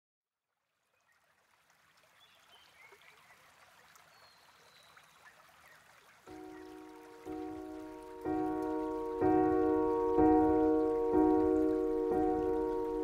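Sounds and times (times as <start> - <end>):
stream water trickling: 0.3 - 13.0
piano chord: 6.3 - 13.0.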